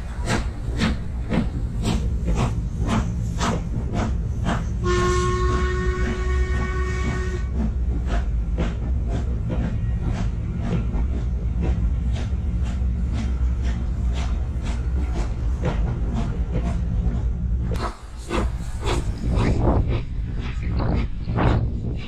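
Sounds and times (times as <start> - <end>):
steam locomotive chuffing: 0.0 - 22.0
steam whistle: 4.8 - 7.5.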